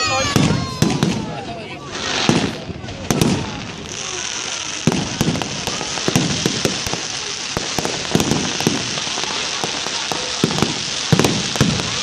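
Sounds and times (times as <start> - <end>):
fireworks hissing crackle: 0.0 - 12.0
fireworks shells bursting: 0.0 - 12.0.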